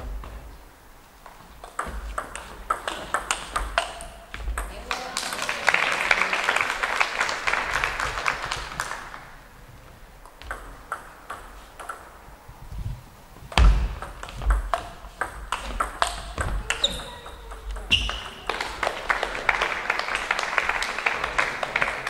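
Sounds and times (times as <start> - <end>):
table tennis ball clicking: 1.6 - 4.7, 10.2 - 12.1, 13.5 - 19.0
spectators applauding: 4.7 - 9.4, 18.1 - 22.0
loud low thump: 13.5 - 14.6.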